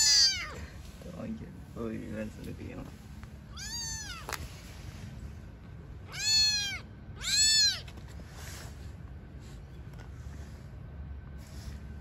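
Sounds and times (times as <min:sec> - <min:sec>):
kitten meowing: 0:00.0 - 0:00.6, 0:03.5 - 0:04.4, 0:06.0 - 0:07.9.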